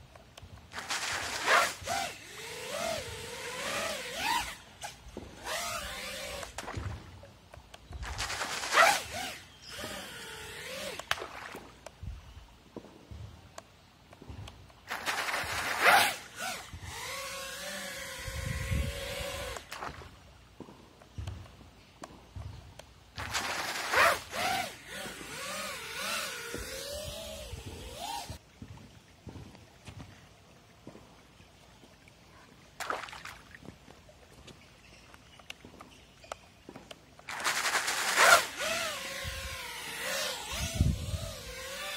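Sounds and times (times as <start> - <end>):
motors churning water: 0.6 - 7.4, 14.8 - 20.4, 37.2 - 41.9
water spraying and splashing: 0.7 - 4.2, 8.1 - 9.4, 14.9 - 17.0, 23.2 - 24.5, 37.3 - 39.2
drone motor whine: 1.5 - 6.6, 8.8 - 11.1, 15.8 - 19.7, 23.7 - 28.4, 37.4 - 41.9.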